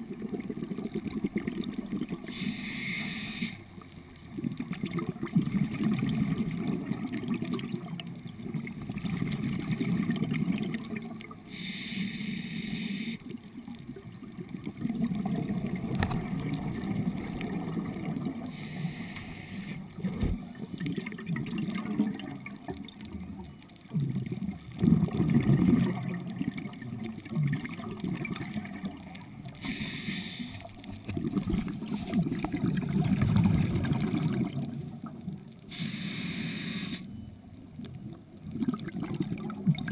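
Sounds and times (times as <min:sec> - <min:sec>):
scuba regulator bubbles: 0:00.0 - 0:39.9
low underwater rumbling: 0:13.4 - 0:29.6, 0:30.7 - 0:35.6.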